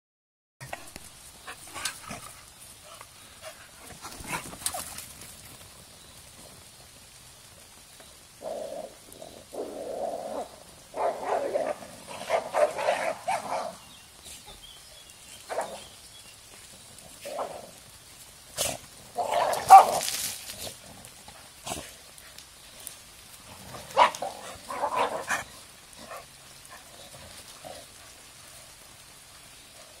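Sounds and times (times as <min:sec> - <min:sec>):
dogs barking: 0:10.9 - 0:13.8, 0:15.5 - 0:15.9, 0:18.6 - 0:20.1, 0:23.9 - 0:26.9.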